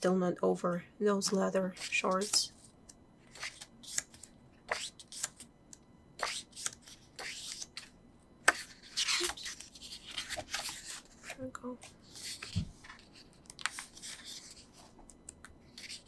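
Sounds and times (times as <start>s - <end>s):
pages being turned: 1.8s - 5.5s, 6.2s - 7.9s, 8.5s - 15.0s, 15.7s - 16.0s.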